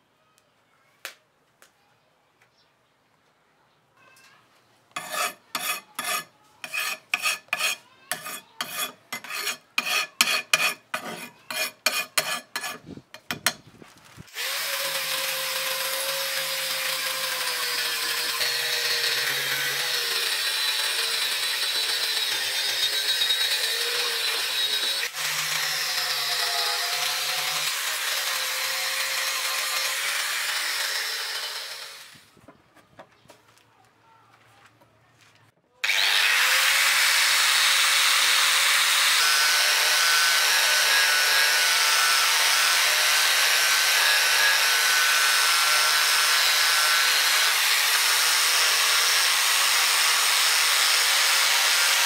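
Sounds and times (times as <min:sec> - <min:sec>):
scraping strokes on a knife blade: 0:05.0 - 0:13.6
angle grinder whining: 0:14.3 - 0:32.2, 0:35.8 - 0:52.0.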